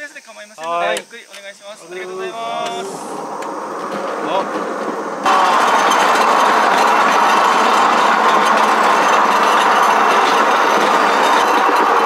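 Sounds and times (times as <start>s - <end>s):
wheels rumbling on steel rails: 2.0s - 12.0s
frame rattling: 3.7s - 12.0s.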